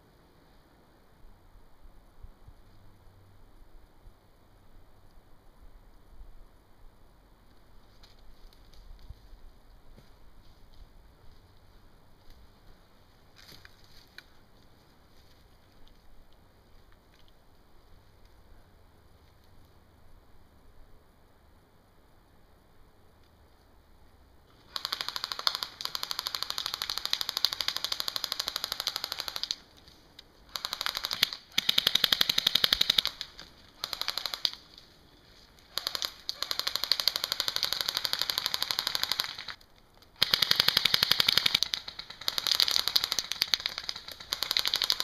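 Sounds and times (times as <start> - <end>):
airsoft guns firing full auto: 24.6 - 29.6, 30.5 - 34.7, 35.7 - 39.6, 40.2 - 45.0.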